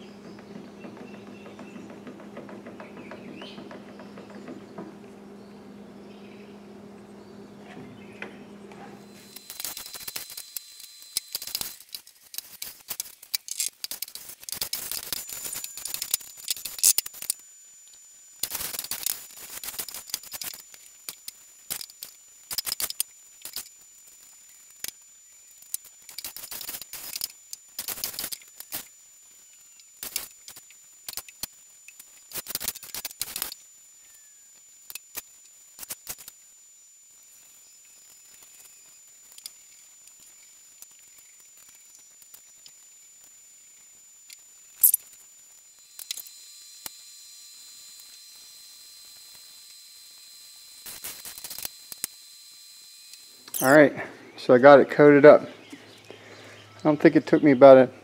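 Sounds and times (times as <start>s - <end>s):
steady low hum: 0.0s - 32.4s.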